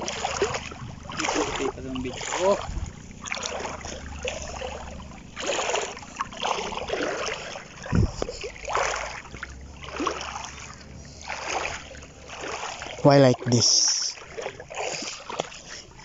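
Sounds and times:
wading through shallow water: 0.0 - 16.0
dull thump: 7.9 - 8.3.

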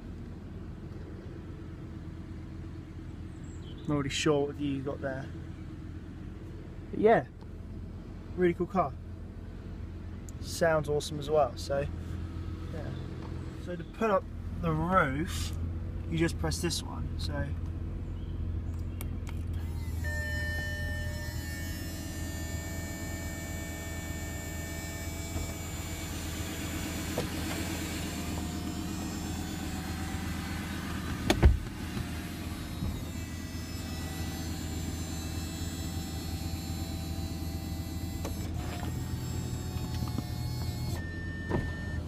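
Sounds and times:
car engine idling: 0.0 - 42.0
soft top motors whining: 18.7 - 42.0.

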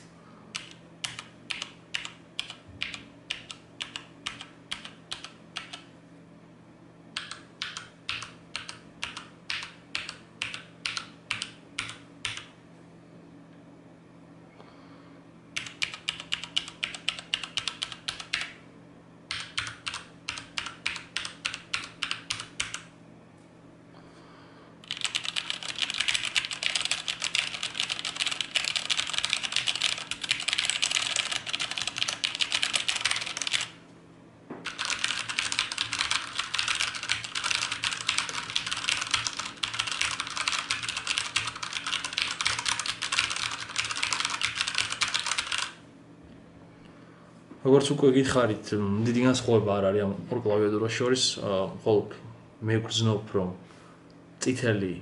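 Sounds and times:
mechanical keyboard typing: 0.6 - 5.8, 7.2 - 12.5, 15.6 - 18.6, 19.3 - 22.9, 24.8 - 33.8, 34.6 - 45.8.

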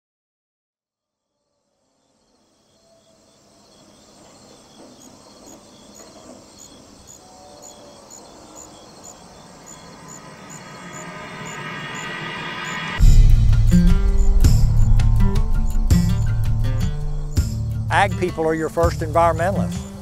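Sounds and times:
faint calls: 2.4 - 13.0
high regular chirping: 3.7 - 20.0.

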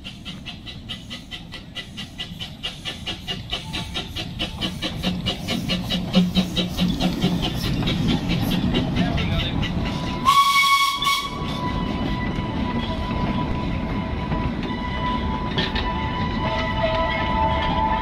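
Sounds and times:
steam hiss: 0.0 - 8.6
steam locomotive exhaust beats: 0.0 - 18.0
wheel flanges squealing: 0.0 - 18.0
steam whistle blast: 10.2 - 12.4.

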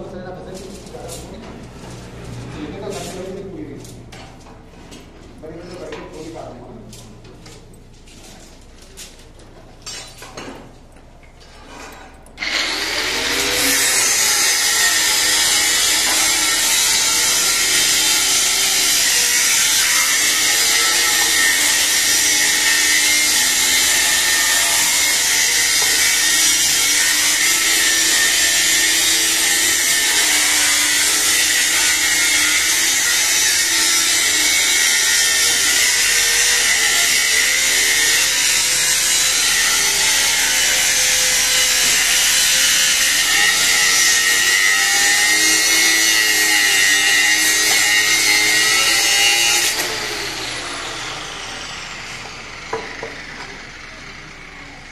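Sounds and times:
angle grinder cutting steel: 12.4 - 54.9.

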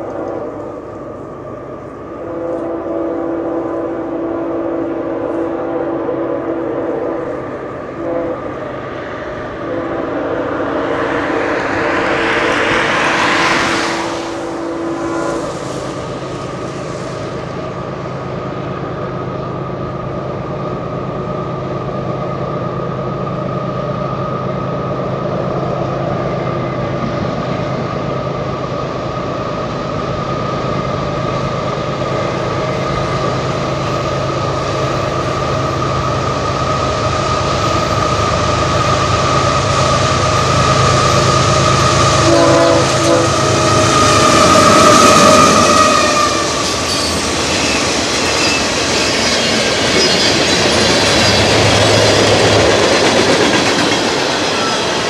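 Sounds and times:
locomotive horn blasts: 0.0 - 0.7, 2.1 - 8.8, 9.4 - 10.8, 13.4 - 15.8, 40.7 - 47.0
train drone: 0.0 - 55.0
rushing noise: 6.5 - 18.4, 28.8 - 55.0.

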